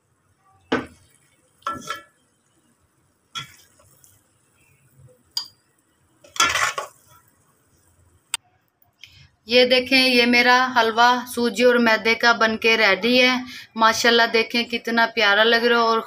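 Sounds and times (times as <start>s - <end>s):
metal spoon scraping metal pot: 1.6s - 2.2s, 6.2s - 7.2s.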